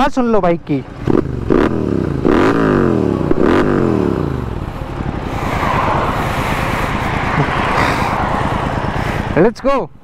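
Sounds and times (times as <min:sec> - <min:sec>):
wind and road noise: 0:00.0 - 0:10.0
motorcycle engine revving: 0:00.8 - 0:09.5.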